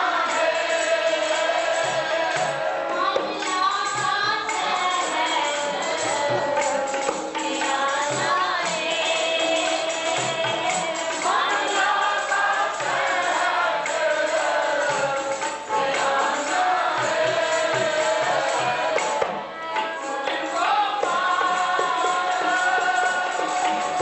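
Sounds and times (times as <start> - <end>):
woman singing a hymn: 0.0 - 15.2
hand percussion beat: 0.0 - 24.0
harmonium: 0.0 - 24.0
men singing: 0.0 - 24.0.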